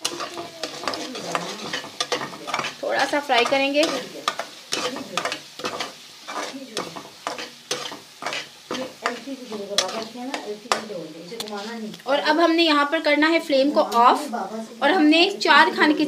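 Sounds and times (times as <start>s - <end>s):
utensil scraping a pan: 0.0s - 11.8s
food sizzling in oil: 0.0s - 16.0s.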